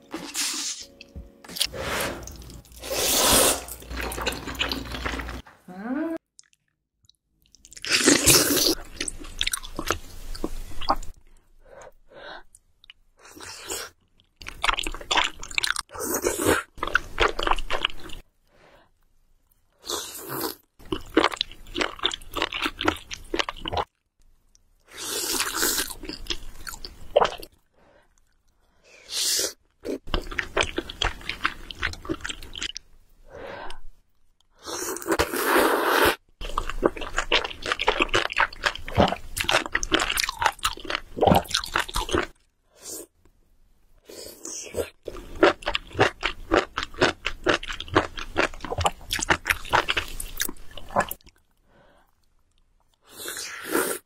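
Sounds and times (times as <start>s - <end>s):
person slurping and chewing noodles: 0.1s - 5.4s, 7.6s - 11.2s, 13.3s - 18.2s, 29.1s - 32.8s, 34.6s - 43.1s, 44.1s - 51.3s, 53.0s - 54.0s.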